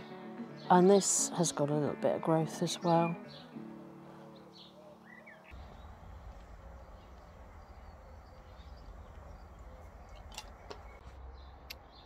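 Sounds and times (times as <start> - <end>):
background music: 0.0 - 5.6
faint bird chirps: 4.4 - 12.0
steady low rumble: 5.5 - 11.8.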